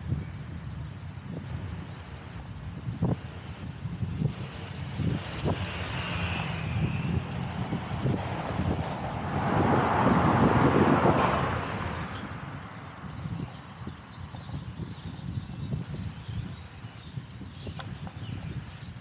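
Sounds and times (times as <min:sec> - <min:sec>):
small birds chirping: 0:00.0 - 0:09.4, 0:11.6 - 0:19.0
wind rumble on microphone: 0:00.0 - 0:19.0
vehicle passing close by: 0:04.3 - 0:13.6.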